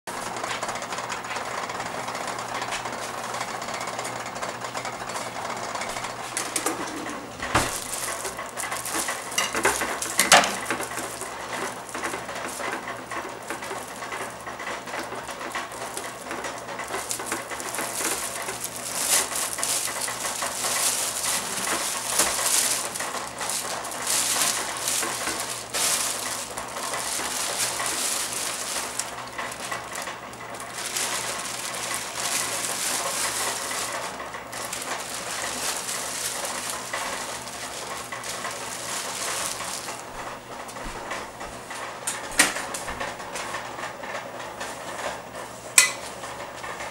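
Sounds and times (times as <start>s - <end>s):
plastic bag crinkling: 5.9s - 41.4s
frozen berries clattering into pot: 6.4s - 40.4s.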